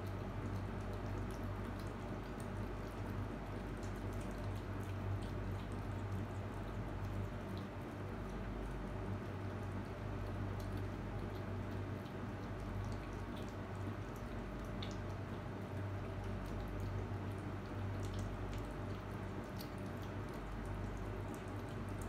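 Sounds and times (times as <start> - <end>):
kittens chewing and lapping food: 0.0 - 22.0
steady low hum: 0.0 - 22.0.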